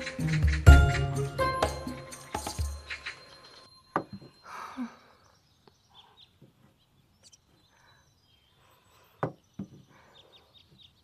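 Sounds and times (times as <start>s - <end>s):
faint bird chirps: 2.7s - 11.0s.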